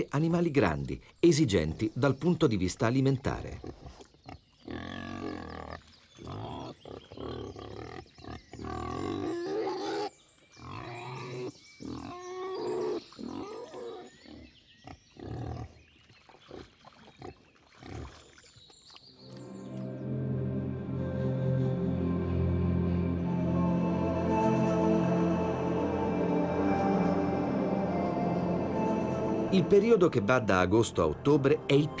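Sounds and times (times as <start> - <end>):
wild boars grunting and calling: 3.5 - 18.2.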